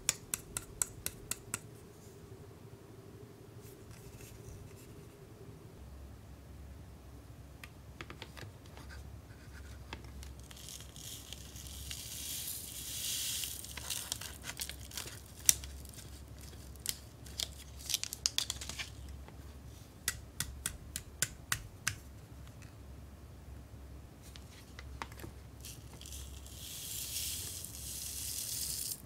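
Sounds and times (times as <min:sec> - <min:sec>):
foil packet crinkling and tearing: 0:10.3 - 0:19.0.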